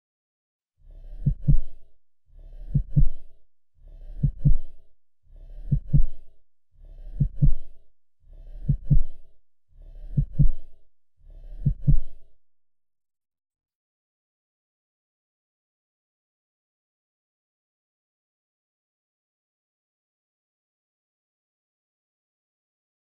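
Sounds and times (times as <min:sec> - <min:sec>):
slow heartbeat double thumps: 0:01.1 - 0:01.9, 0:02.6 - 0:03.4, 0:04.1 - 0:04.9, 0:05.6 - 0:06.4, 0:07.1 - 0:07.8, 0:08.6 - 0:09.3, 0:10.0 - 0:10.8, 0:11.6 - 0:12.3.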